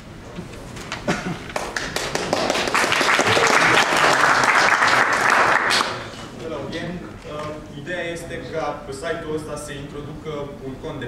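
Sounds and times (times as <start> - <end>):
audience applauding: 1.4 - 6.2.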